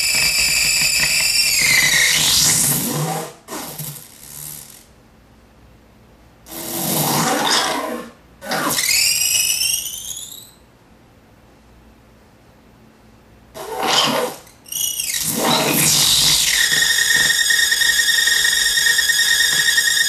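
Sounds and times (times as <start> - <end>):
distorted toy animal sounds: 6.5 - 10.6, 13.6 - 20.0
warbling rising squeal: 8.5 - 10.6, 13.6 - 20.0.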